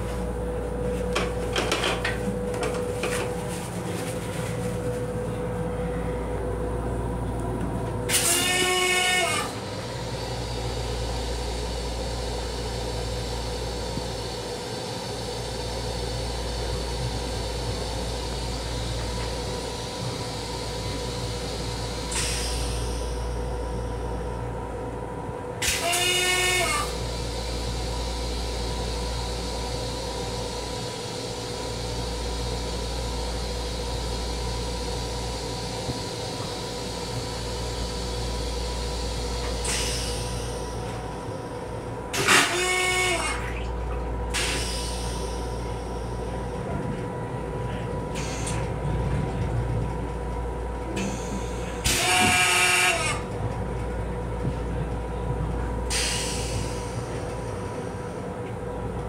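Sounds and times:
train rumble and hum: 0.0s - 59.0s
train horn: 8.1s - 9.6s, 25.6s - 27.0s, 42.2s - 43.6s, 51.8s - 53.2s.

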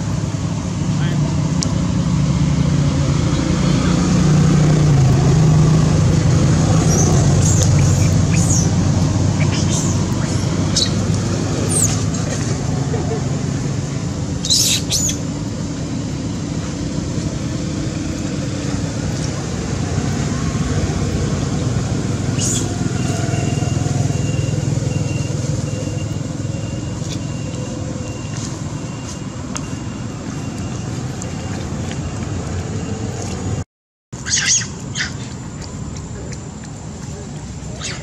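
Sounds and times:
distant road traffic rumble: 0.0s - 33.6s, 34.2s - 38.0s
high-pitched chirps: 6.7s - 12.0s.

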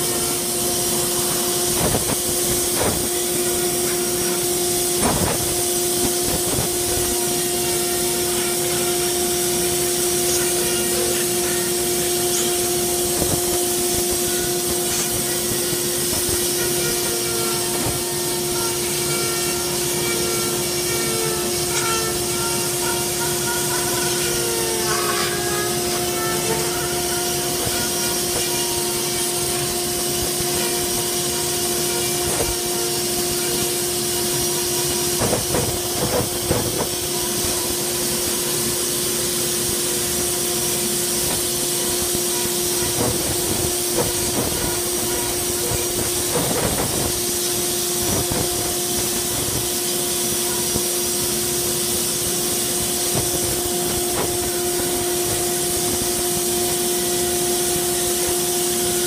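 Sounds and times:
dust hose sucking air: 0.0s - 59.0s
rotary tool grinding wood: 9.8s - 37.7s.

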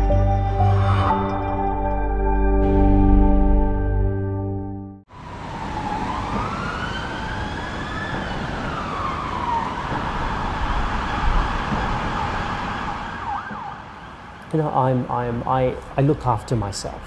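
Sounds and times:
emergency siren wailing: 5.1s - 14.4s
city traffic: 5.1s - 17.0s.

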